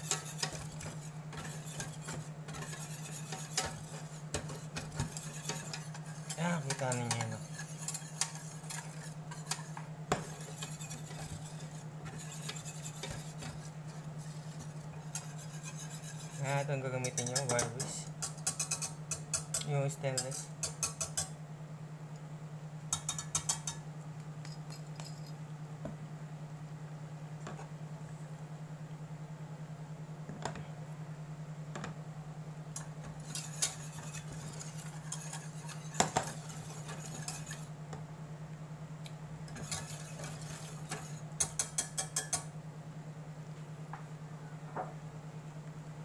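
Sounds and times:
whisk rattling against saucepan: 0:00.0 - 0:21.3, 0:22.9 - 0:23.8, 0:32.8 - 0:37.7, 0:39.5 - 0:42.5
steady low hum: 0:00.0 - 0:46.0.

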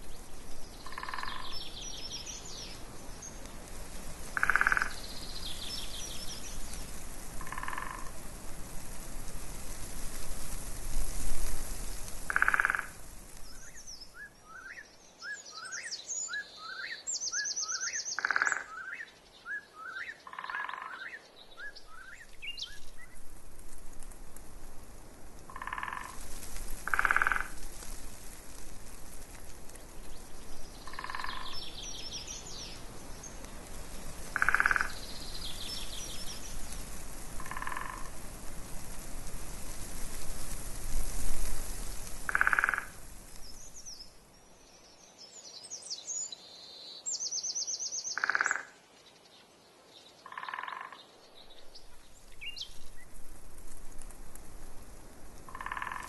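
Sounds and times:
birds singing: 0:00.6 - 0:03.5, 0:04.4 - 0:06.7, 0:13.5 - 0:23.2, 0:30.1 - 0:33.6, 0:34.4 - 0:36.5, 0:43.4 - 0:53.1
frogs calling: 0:00.8 - 0:01.7, 0:04.4 - 0:05.2, 0:07.4 - 0:08.2, 0:12.3 - 0:13.0, 0:17.7 - 0:19.1, 0:19.9 - 0:21.2, 0:25.5 - 0:26.2, 0:26.8 - 0:27.6, 0:30.8 - 0:32.0, 0:34.3 - 0:35.1, 0:37.4 - 0:38.2, 0:42.3 - 0:43.0, 0:48.1 - 0:48.8, 0:50.2 - 0:51.0, 0:55.5 - 0:56.0.

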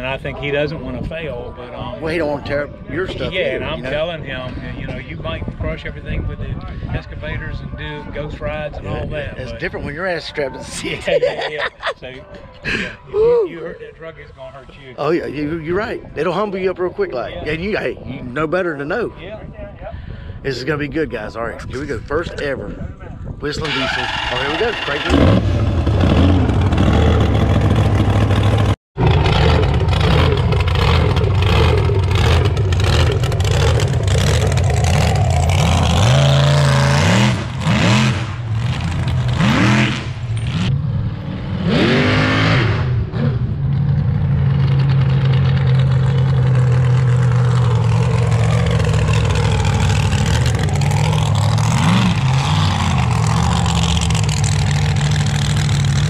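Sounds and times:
truck engine revving: 0:23.6 - 0:56.0.

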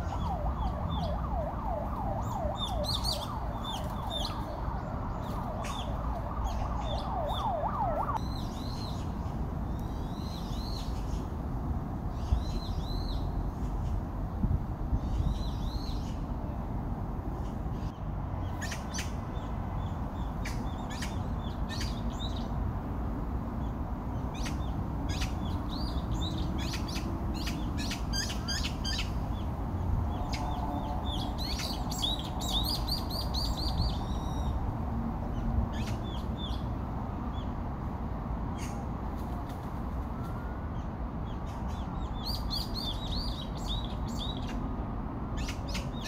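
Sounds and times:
small birds chirping: 0:02.2 - 0:07.6, 0:17.4 - 0:22.6, 0:23.6 - 0:34.6, 0:35.3 - 0:37.6, 0:40.8 - 0:44.6.

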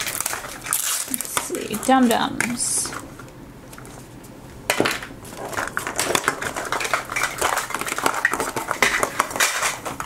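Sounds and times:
plastic wrapper crinkling: 0:00.0 - 0:04.2, 0:05.0 - 0:10.0.

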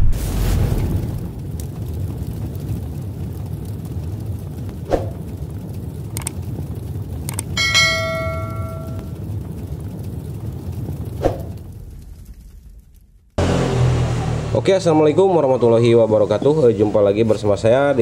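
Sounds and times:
steady low rumble: 0:00.0 - 0:13.5
faint clicks: 0:06.1 - 0:06.6, 0:07.2 - 0:07.6
metal struck ringing like bell: 0:07.6 - 0:09.1.

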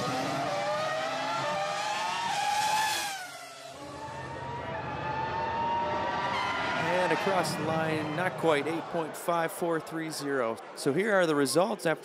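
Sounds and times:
race car engine revving: 0:00.0 - 0:08.9.

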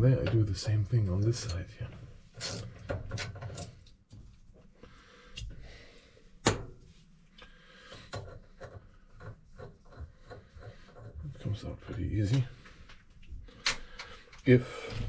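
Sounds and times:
screwdriver metal clicks and scraping: 0:02.4 - 0:04.0.

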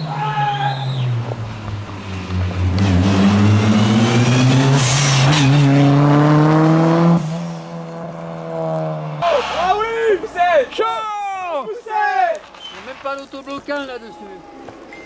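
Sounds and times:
rally car engine accelerating: 0:00.0 - 0:09.6.

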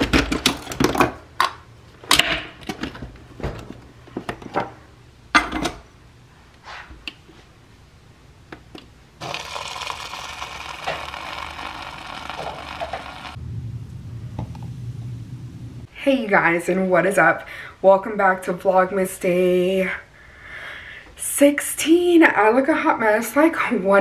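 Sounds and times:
coffee machine brewing whirr: 0:09.2 - 0:13.4
low machine hum: 0:09.2 - 0:16.0.

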